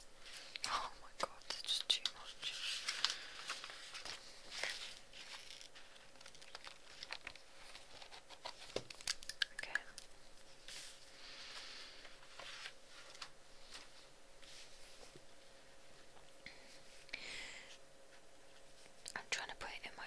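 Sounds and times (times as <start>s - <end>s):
soft hiss: 0.0s - 20.0s
crinkling and crackling handling: 0.2s - 15.2s.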